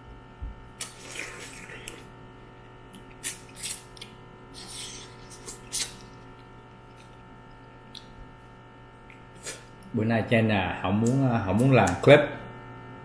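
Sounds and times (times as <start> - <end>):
steady low hum: 0.0 - 13.0
eating mouth noises: 0.8 - 2.1.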